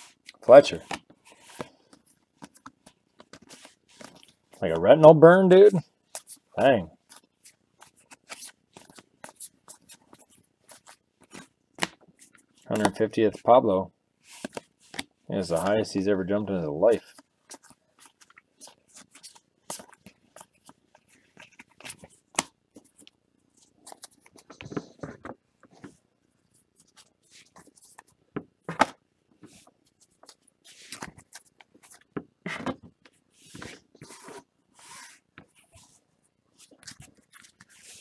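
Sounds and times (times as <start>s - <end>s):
trading cards being flipped: 0.8s - 4.4s, 14.3s - 15.7s.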